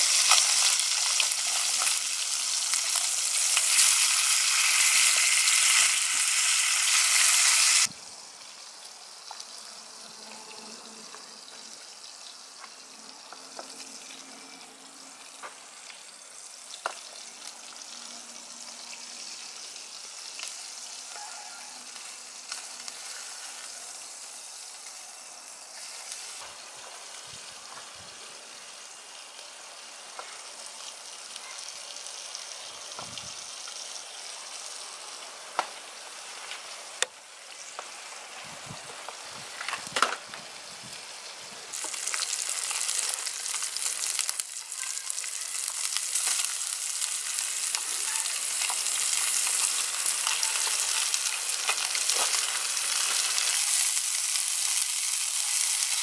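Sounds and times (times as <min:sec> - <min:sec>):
fish sizzling in hot oil: 0:00.0 - 0:56.0.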